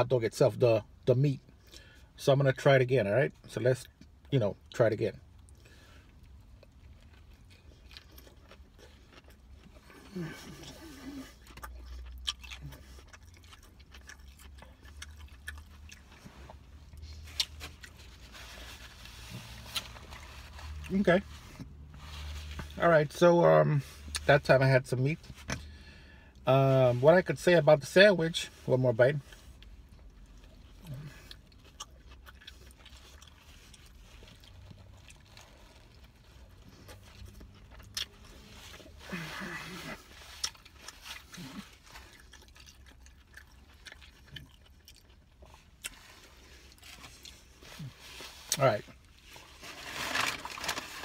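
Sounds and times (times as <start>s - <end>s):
low steady hum: 0.0s - 51.0s
person chewing food: 5.4s - 20.9s, 29.5s - 50.8s.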